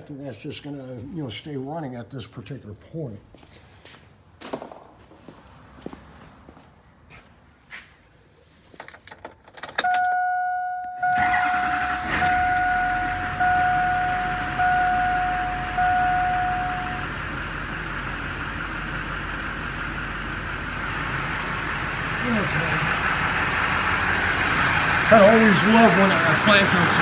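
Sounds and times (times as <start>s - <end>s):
keys jangling: 8.7s - 11.0s
diesel engine starting and idling: 9.7s - 27.0s
dashboard warning chime beeping: 9.8s - 17.3s.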